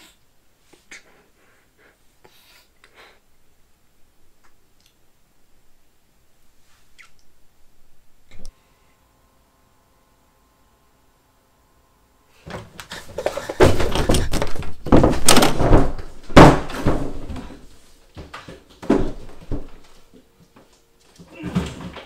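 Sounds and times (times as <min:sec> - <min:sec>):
heavy thuds and bangs: 0:12.5 - 0:17.6.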